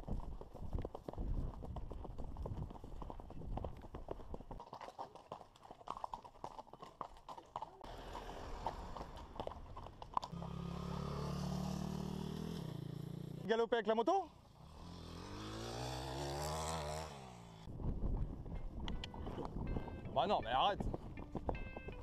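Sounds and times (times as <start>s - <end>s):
horse hooves clip-clopping: 0.0s - 10.8s, 20.8s - 22.0s
motorcycle engine running: 10.3s - 13.5s.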